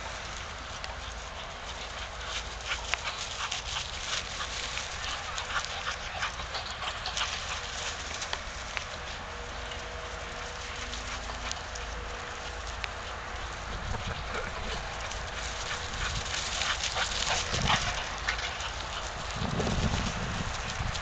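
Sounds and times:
dog paws pattering: 0.0 - 21.0
grass rustling: 0.0 - 21.0
wind on microphone: 13.5 - 21.0.

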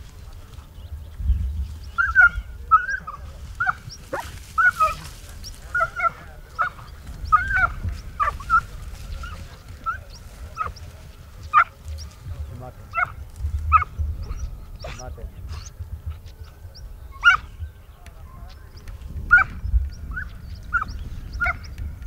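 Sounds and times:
dog yelping barks: 2.0 - 5.0, 5.8 - 8.6, 12.9 - 15.0, 17.2 - 17.5, 19.3 - 19.5.

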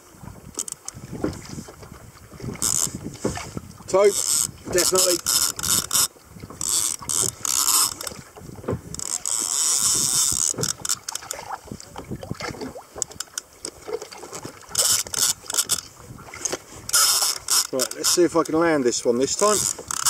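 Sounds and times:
fishing reel rasp: 2.6 - 2.9, 4.0 - 8.2, 9.0 - 11.3, 14.7 - 15.9, 16.9 - 18.5, 19.2 - 20.0
fishing reel ratchet clicking: 4.1 - 8.1, 9.0 - 11.4, 14.8 - 15.9, 16.9 - 18.6, 19.3 - 20.0.

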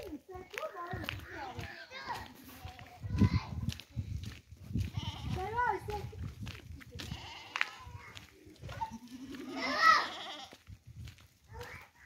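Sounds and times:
goat bleating: 4.9 - 5.4, 7.0 - 7.8, 8.7 - 10.6.

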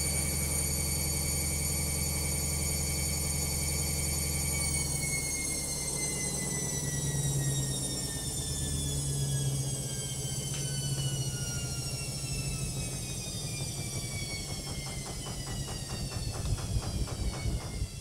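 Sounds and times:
washing machine winding down: 0.0 - 18.0
washing machine drum knocking: 14.1 - 18.0.

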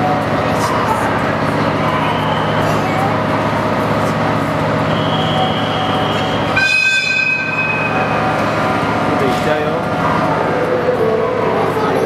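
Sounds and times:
train rumbling: 0.0 - 12.0
train horn: 5.2 - 8.0.

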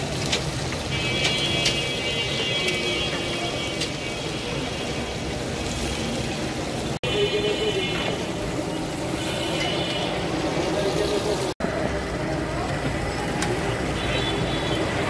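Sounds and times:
oil sizzling in a pan: 0.0 - 11.6
street traffic: 0.0 - 15.0.

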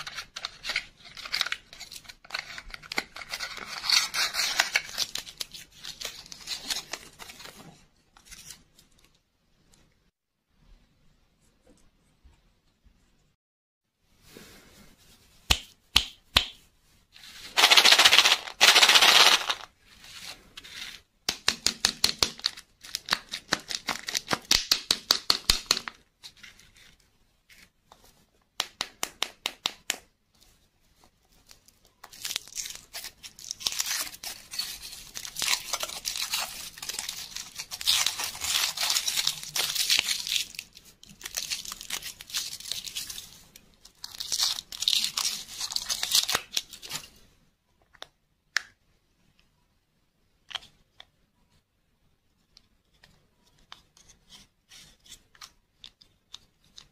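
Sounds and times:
foil wrapper crinkling: 17.6 - 19.6.

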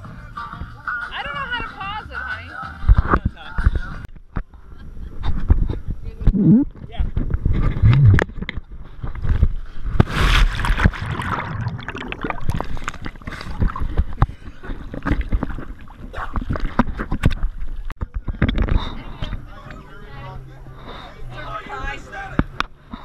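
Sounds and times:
lake water splashing and sloshing: 9.2 - 18.3
choppy water slaps: 10.0 - 18.3.

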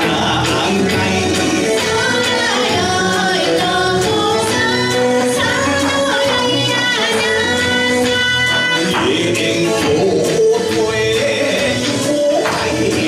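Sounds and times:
man singing: 0.0 - 2.5, 8.5 - 13.0
band playing with steady beat: 0.0 - 13.0.

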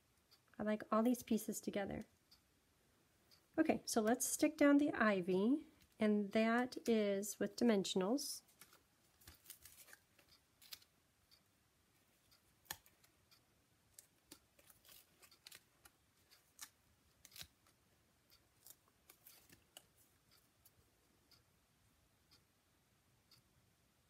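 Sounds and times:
plastic sheet ticks and crinkles: 8.4 - 10.9, 12.2 - 20.8.

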